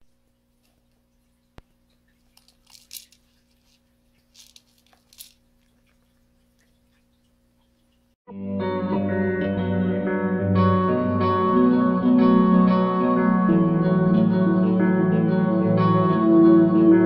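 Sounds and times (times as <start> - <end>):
low electrical hum: 0.0 - 8.2.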